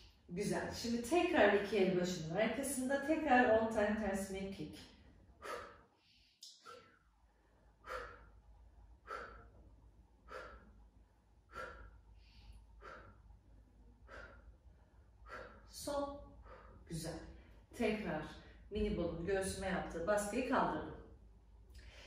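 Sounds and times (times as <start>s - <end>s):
woman breathing out: 5.4s - 8.4s, 9.0s - 13.4s, 14.0s - 15.7s.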